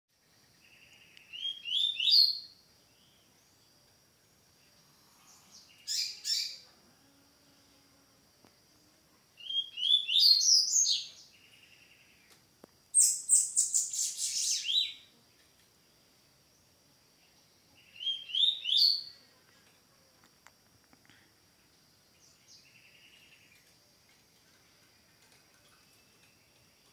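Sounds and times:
songbird whistling song: 0.6s - 3.6s, 5.6s - 6.6s, 9.4s - 15.1s, 17.8s - 19.2s.

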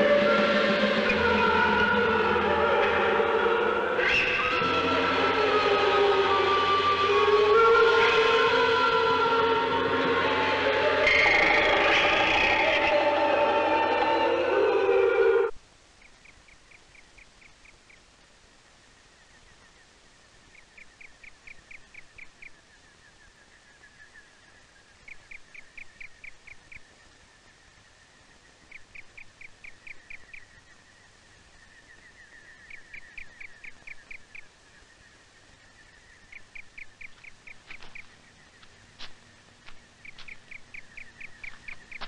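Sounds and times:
animal chirping rapidly: 40.0s - 42.0s.

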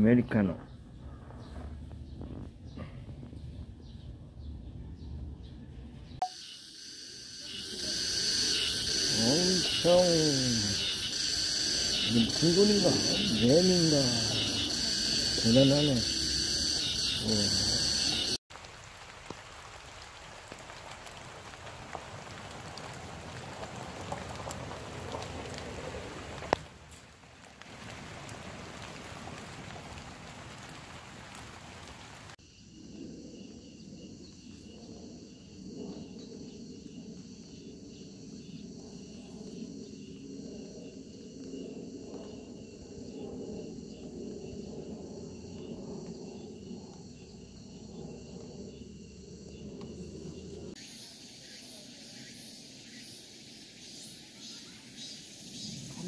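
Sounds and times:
high bright insect buzz: 6.2s - 18.4s
insect chirring: 6.2s - 18.4s, 32.1s - 56.0s.

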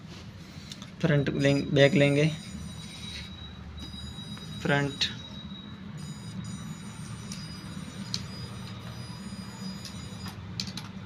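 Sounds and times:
steady low hum: 0.0s - 11.0s
toy car motor whining: 6.0s - 10.4s.

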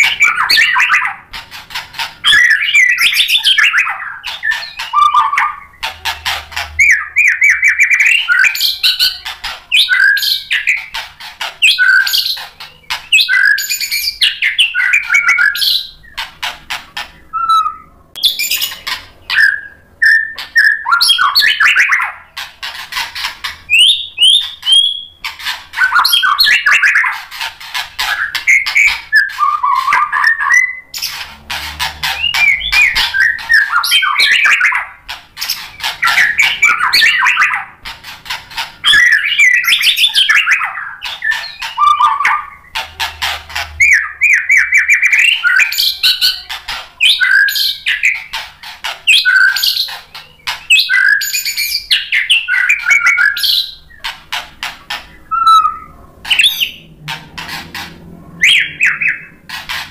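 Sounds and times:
bird singing whistles and trills: 0.0s - 1.2s, 2.2s - 5.9s, 6.8s - 11.0s, 11.6s - 16.2s, 17.3s - 22.2s, 23.7s - 27.2s, 28.0s - 31.2s, 32.0s - 37.7s, 38.8s - 42.8s, 43.7s - 48.4s, 49.1s - 54.1s, 55.1s - 56.9s, 58.3s - 59.4s.

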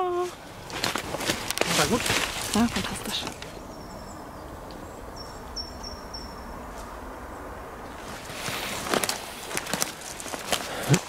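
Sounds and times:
footsteps crunching through dry leaves: 0.3s - 3.6s, 7.8s - 11.0s.

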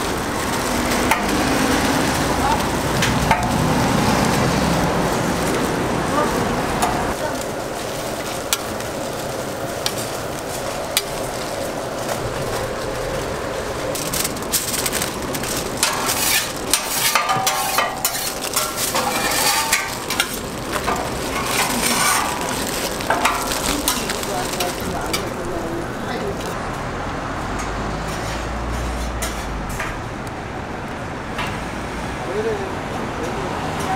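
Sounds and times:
aluminium foil crinkling: 0.0s - 26.6s
griddle sizzling: 0.0s - 30.2s.

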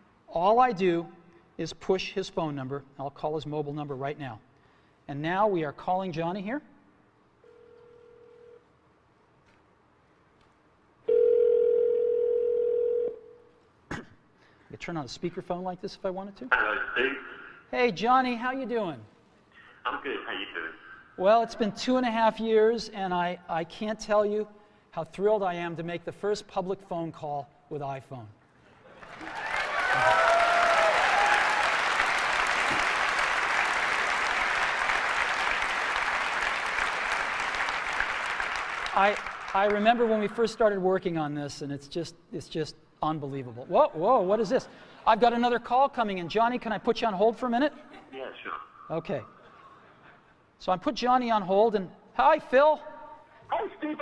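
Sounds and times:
phone ringback tone: 7.4s - 8.6s, 11.1s - 13.4s
audience applauding: 29.0s - 40.2s.

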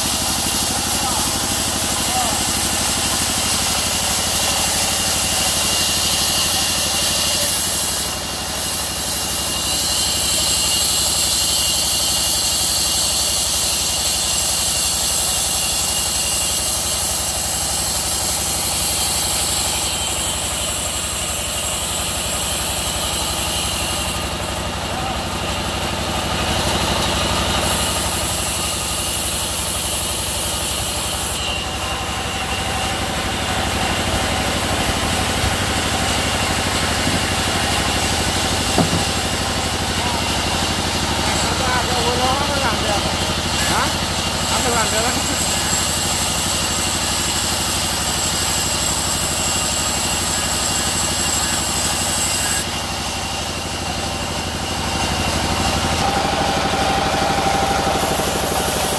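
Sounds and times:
sawmill saw running: 0.0s - 58.9s.

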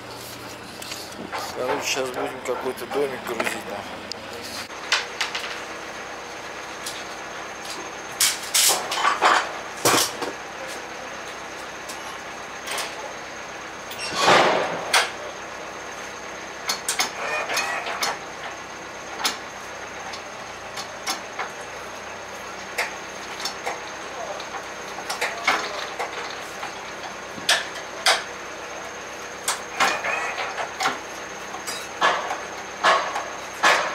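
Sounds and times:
metal clanks and knocks: 1.2s - 3.8s, 14.0s - 15.2s, 31.6s - 33.9s.

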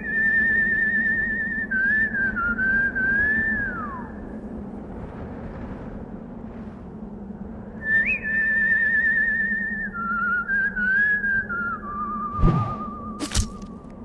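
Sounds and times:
steady rushing noise: 12.3s - 13.5s.

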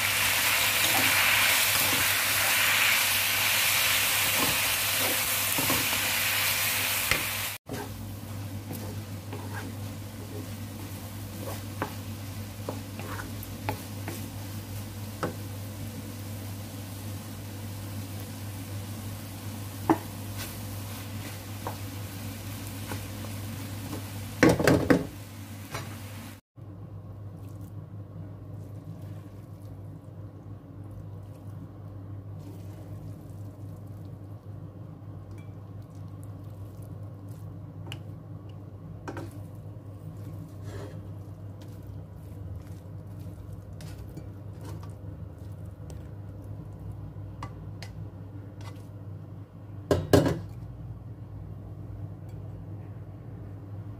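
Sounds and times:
noodles sizzling in a wok: 0.0s - 26.4s
spatula scraping and knocking pan: 8.7s - 10.6s, 11.3s - 14.3s.

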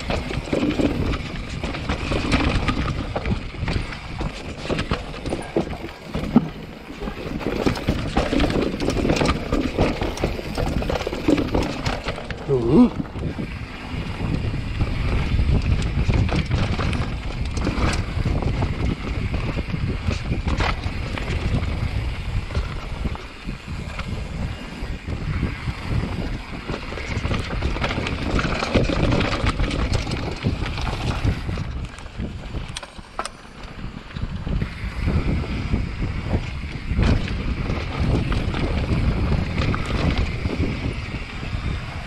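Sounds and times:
tyres rumbling over rock: 0.0s - 24.2s, 24.8s - 32.7s
bike knocking and rattling: 0.0s - 42.0s
wind buffeting microphone: 0.0s - 42.0s.

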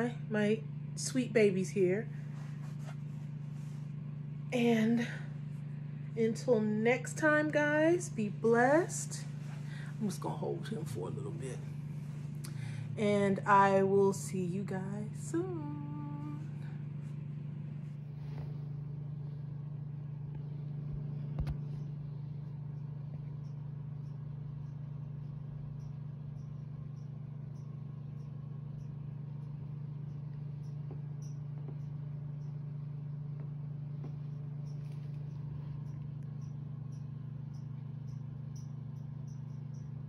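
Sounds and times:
steady low hum: 0.0s - 40.0s
faint high chirps: 21.7s - 40.0s.

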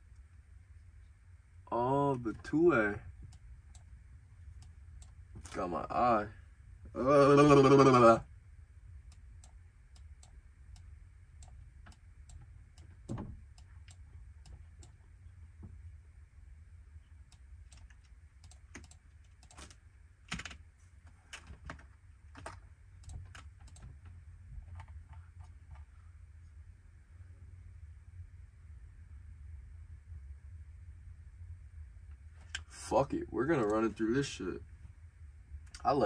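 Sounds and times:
low steady hum: 0.0s - 36.0s
typing on computer keyboard: 17.7s - 19.7s.

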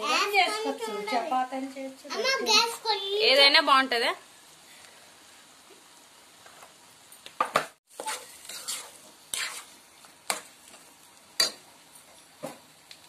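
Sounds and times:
faint food sizzling: 0.0s - 13.0s
metal spoon scraping frying pan: 7.9s - 10.8s, 11.4s - 11.6s.

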